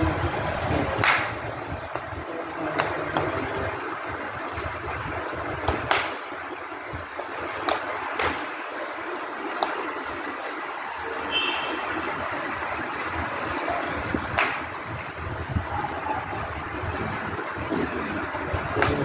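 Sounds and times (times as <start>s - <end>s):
air cooler fan whooshing: 0.0s - 8.7s, 9.8s - 19.0s
flip-flops slapping on marble floor: 7.6s - 8.5s, 9.5s - 9.9s.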